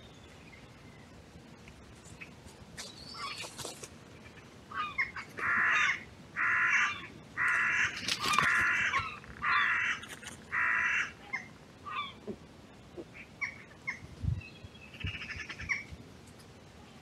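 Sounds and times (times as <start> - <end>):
crow cawing: 5.4 - 11.2.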